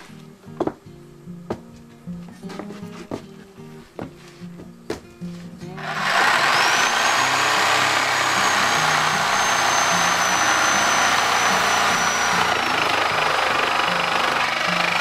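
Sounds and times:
power tool motor whine: 5.8 - 15.0
rasping cutting of metal: 5.8 - 15.0.

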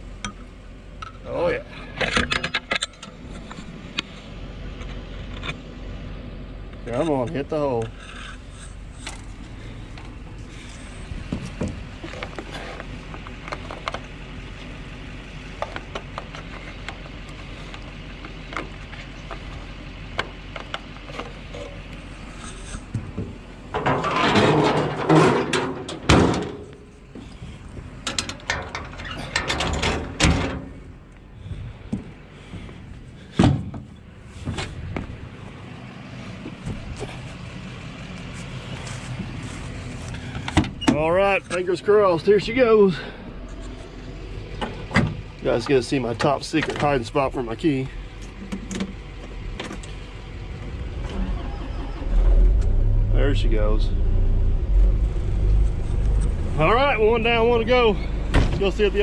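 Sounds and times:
metal panels clattering: 23.7 - 26.8.

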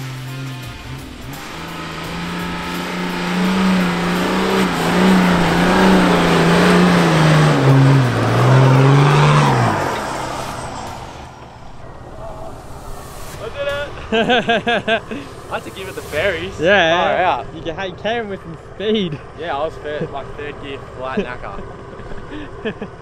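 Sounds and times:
engine revving hard: 0.0 - 11.4
tyres churning sand: 0.0 - 22.8.

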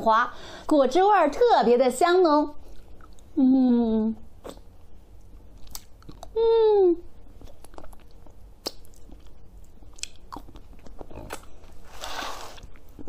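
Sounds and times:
woman humming: 3.4 - 4.2, 6.3 - 7.1
wet mouth clicks and smacks: 5.6 - 6.3, 7.5 - 9.3.

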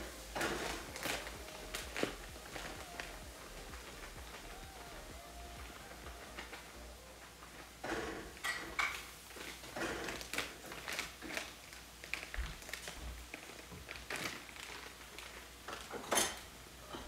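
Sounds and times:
utensils and pots clattering: 7.8 - 10.7, 15.7 - 17.0.

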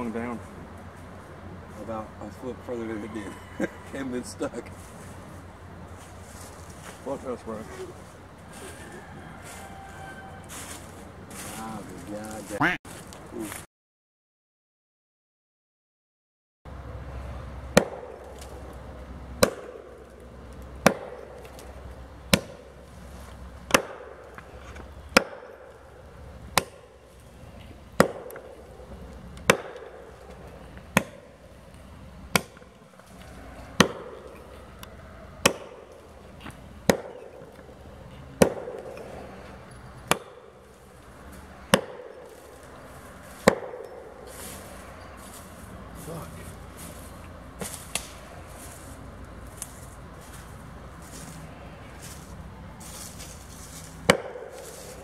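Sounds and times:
axe chopping tree trunk: 17.7 - 18.6, 19.4 - 22.9, 23.6 - 27.3, 27.9 - 31.4, 32.3 - 32.7, 33.8 - 34.5, 35.4 - 37.8, 38.4 - 39.4, 40.0 - 40.7, 41.3 - 42.7, 43.3 - 44.3, 47.6 - 48.7, 53.8 - 55.0.

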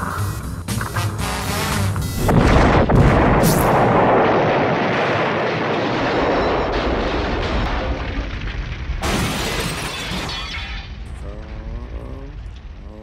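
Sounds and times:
debris crashing down: 2.2 - 12.9
explosion rumble: 2.2 - 13.0
glass and metal shattering: 9.0 - 11.0.

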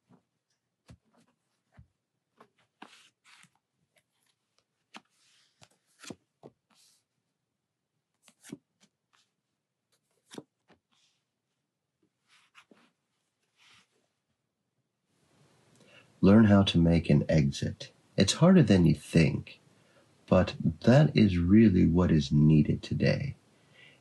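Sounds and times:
cards sliding and tapping on cloth: 0.8 - 7.1, 8.2 - 11.2, 12.2 - 14.0.

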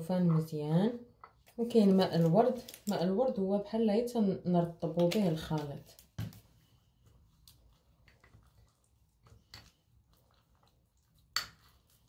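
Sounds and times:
soft squishing and crumbling: 1.1 - 3.5, 4.8 - 12.0.

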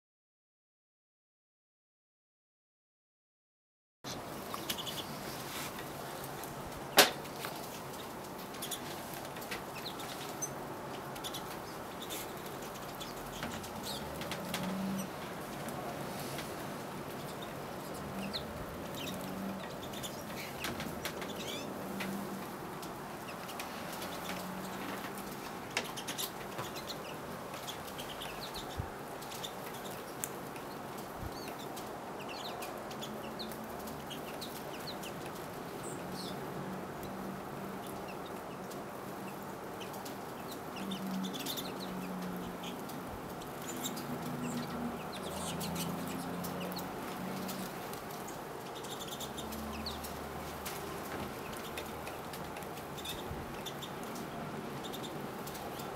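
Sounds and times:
finches chirping: 17.1 - 22.4, 37.8 - 50.3, 51.4 - 55.9.

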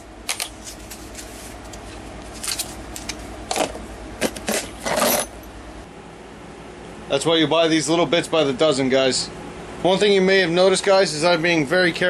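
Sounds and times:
drill bits clinking in plastic tub: 3.5 - 5.4.

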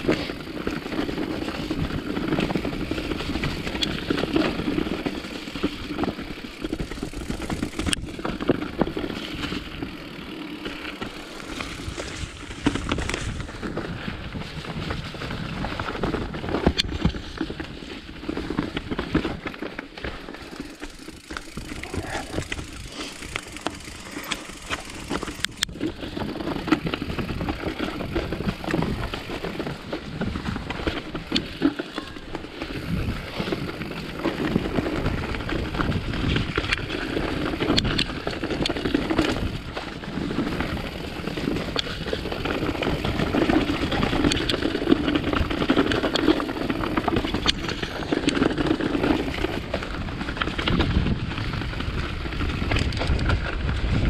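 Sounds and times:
bike rattling with sharp clicks: 0.0 - 54.0
bike tyres rolling over rocks: 0.0 - 54.0
wind noise on microphone: 11.4 - 19.4, 32.6 - 54.0.

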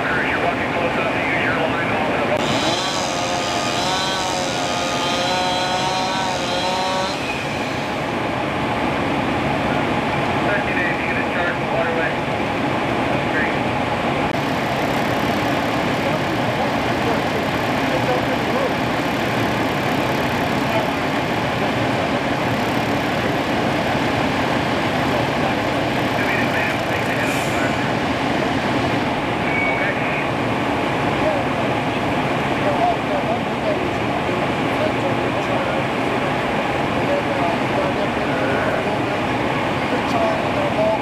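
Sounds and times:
constant rushing noise: 0.0 - 41.0
engine whine at high speed: 0.0 - 41.0.

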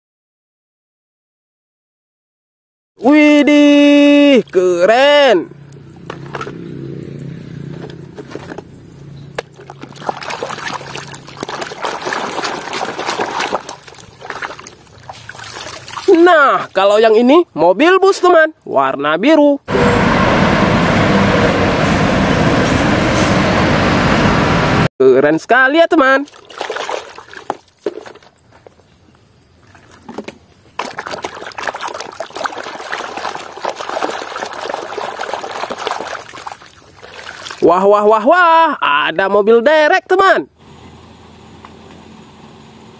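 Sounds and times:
toy scrubbed in sloshing water: 9.5 - 16.3, 26.2 - 28.4, 30.8 - 37.7.

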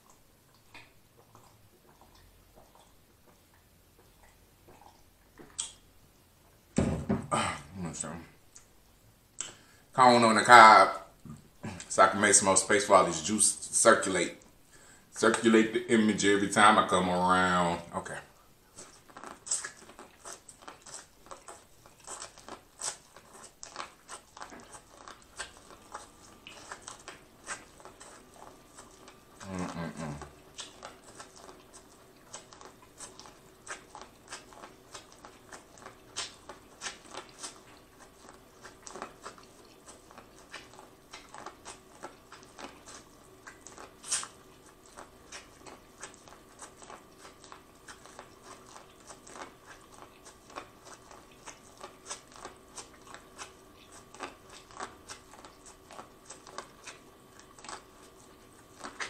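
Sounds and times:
wet mouth clicks: 4.2 - 5.8, 9.4 - 9.6, 28.8 - 57.9
chewing corn crunches: 18.7 - 59.0.

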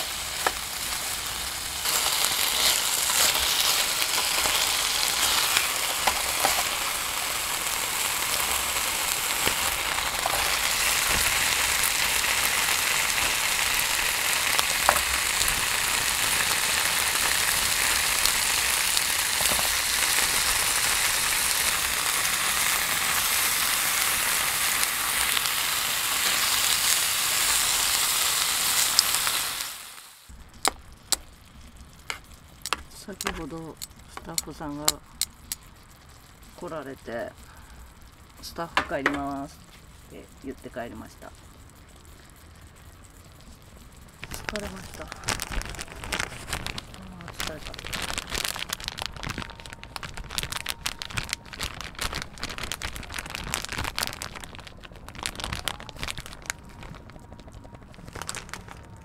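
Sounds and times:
meat sizzling in a tin: 0.0 - 36.0.

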